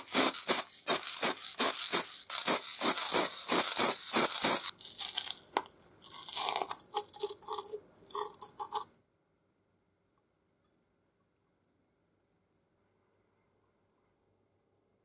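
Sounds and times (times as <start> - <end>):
quick scraping strokes: 0.0 - 4.7
paper crinkling and tearing: 0.0 - 8.8.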